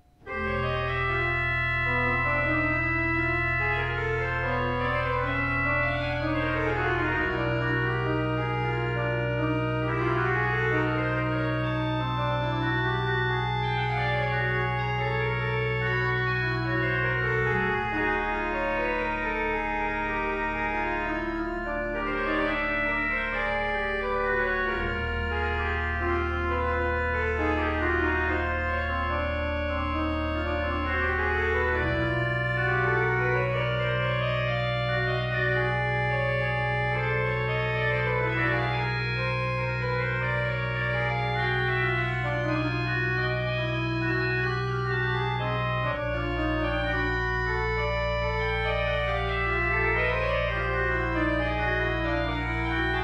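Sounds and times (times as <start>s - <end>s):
organ playing: 0.0s - 53.0s.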